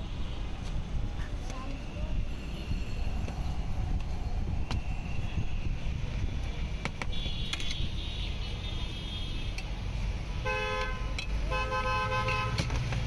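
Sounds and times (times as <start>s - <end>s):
low traffic rumble: 0.0s - 13.0s
vehicle horn honking: 7.1s - 9.5s, 10.4s - 12.6s.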